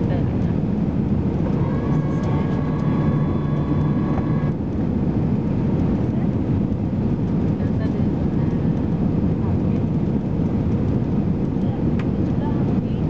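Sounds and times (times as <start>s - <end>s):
aircraft cabin roar: 0.0s - 13.0s
faint high whine: 1.4s - 4.6s.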